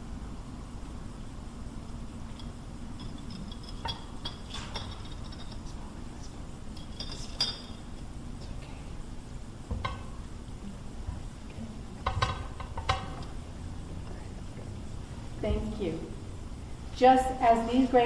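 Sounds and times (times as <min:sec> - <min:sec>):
glass containers clinking: 0:02.4 - 0:05.8, 0:06.7 - 0:07.9.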